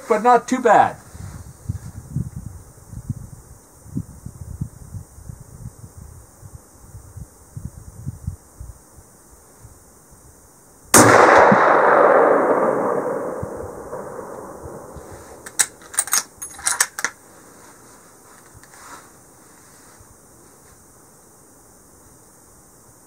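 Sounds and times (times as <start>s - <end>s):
rifle shot echoing: 10.9s - 15.8s
rifle bolt clicks: 15.4s - 17.2s.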